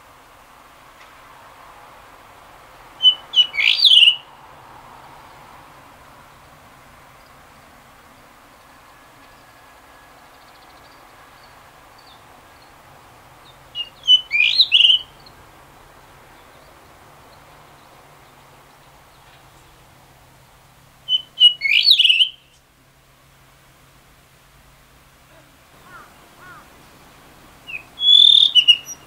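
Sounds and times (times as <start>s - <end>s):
thrush singing: 25.8s - 29.0s.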